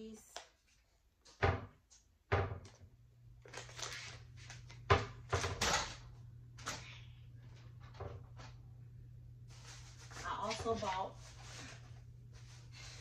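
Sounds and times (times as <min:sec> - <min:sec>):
plastic packaging rustling: 0:03.4 - 0:04.8.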